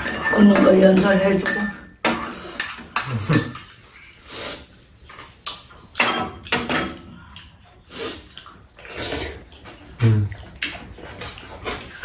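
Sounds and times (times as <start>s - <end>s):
cutlery clinking against bowls: 0.0s - 4.2s, 5.1s - 7.5s
slurping and chewing noodles: 7.1s - 12.0s.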